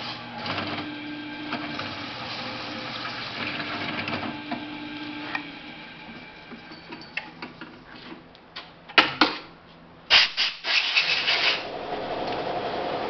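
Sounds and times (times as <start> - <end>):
metal knocks and clinks: 6.6 - 7.5.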